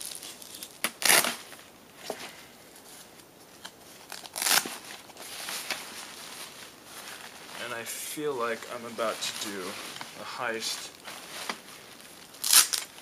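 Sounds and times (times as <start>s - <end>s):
cloth and nylon bag rustling: 0.0s - 13.0s.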